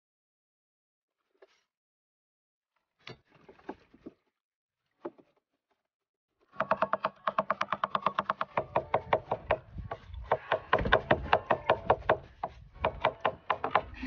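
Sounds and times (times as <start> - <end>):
cleaver chopping on wooden board: 6.6 - 13.9.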